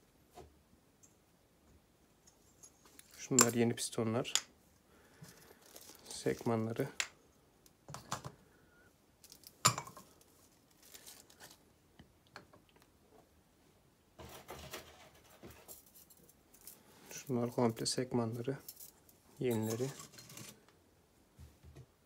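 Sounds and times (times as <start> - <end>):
metal parts clattering: 18.6 - 20.6.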